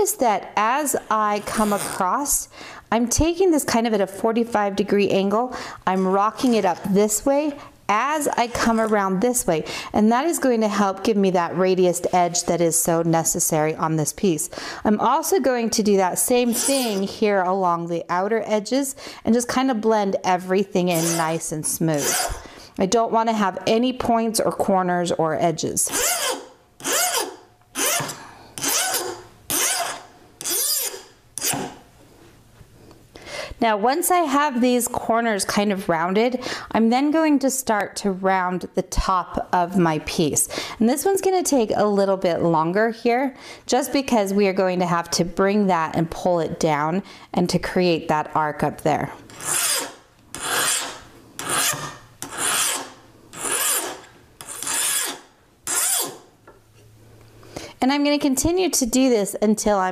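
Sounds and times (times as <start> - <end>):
metal file rasping: 16.4 - 17.1, 22.0 - 22.4, 25.9 - 31.8, 49.3 - 56.2.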